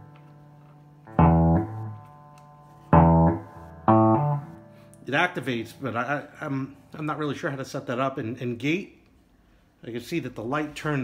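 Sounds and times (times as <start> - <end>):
plucked bass guitar notes: 0.0 - 6.2.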